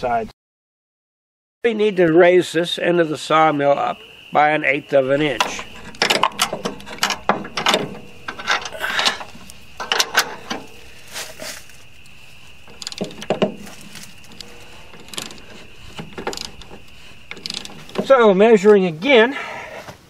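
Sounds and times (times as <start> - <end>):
wrench clicking and clinking: 5.2 - 10.9, 12.6 - 18.1.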